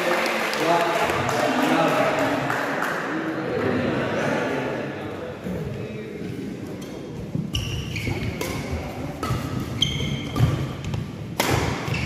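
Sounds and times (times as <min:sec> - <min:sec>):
sports hall noise: 0:00.0 - 0:12.0
shoe squeak: 0:06.8 - 0:08.7, 0:09.3 - 0:10.8
rackets hitting shuttlecock: 0:08.1 - 0:12.0.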